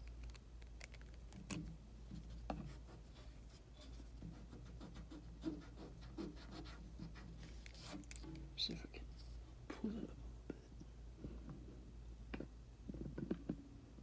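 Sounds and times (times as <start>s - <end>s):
low steady hum: 0.0s - 14.0s
pencil scratching on paper: 2.2s - 8.0s.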